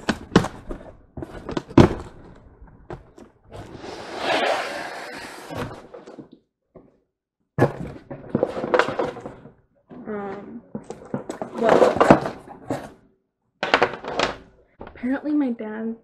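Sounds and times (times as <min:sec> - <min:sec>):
knocks and rustling in box: 0:00.0 - 0:03.7, 0:07.6 - 0:09.6, 0:10.7 - 0:13.0.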